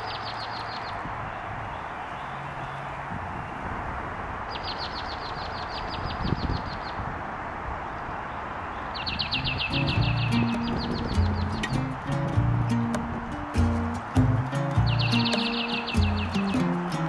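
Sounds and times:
steady outdoor hiss: 0:00.0 - 0:17.0
songbird trilling: 0:08.8 - 0:13.0, 0:13.6 - 0:17.0.

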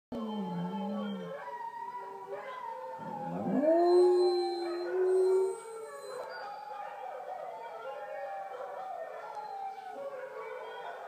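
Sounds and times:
dog long rising howl: 0:00.1 - 0:06.4
dogs howling in chorus: 0:00.1 - 0:11.0.

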